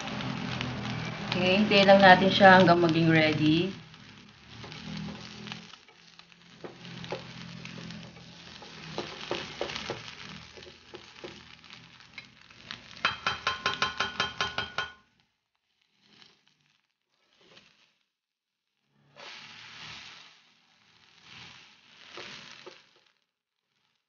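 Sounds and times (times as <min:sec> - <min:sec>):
patty sizzling in a pan: 0:00.0 - 0:24.0
plastic spatula scraping a pan: 0:03.7 - 0:14.9, 0:15.8 - 0:18.0, 0:19.1 - 0:23.1
ringing taps: 0:13.1 - 0:15.0.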